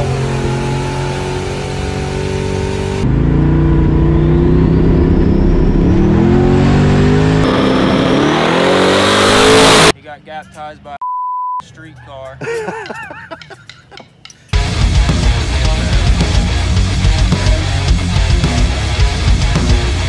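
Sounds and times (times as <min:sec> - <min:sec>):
race car engine accelerating: 0:00.0 - 0:09.9.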